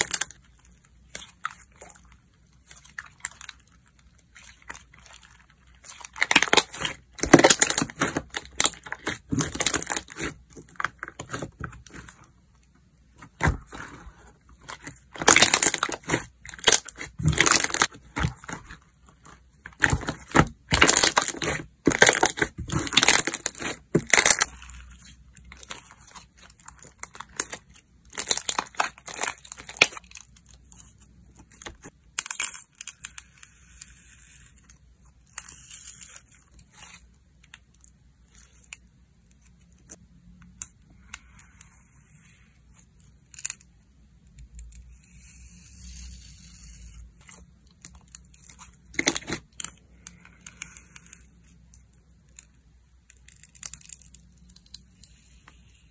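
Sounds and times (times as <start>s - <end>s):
slime crackling and popping: 0.0s - 12.2s, 14.6s - 30.5s, 47.6s - 51.2s
slime squishing: 0.0s - 32.0s, 33.0s - 55.9s.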